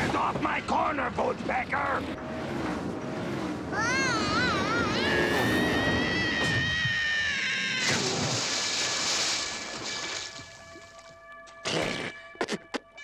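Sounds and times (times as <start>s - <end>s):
long falling tone: 2.2s - 7.8s
high warbling wail: 2.2s - 8.4s
splash into water: 7.8s - 11.0s.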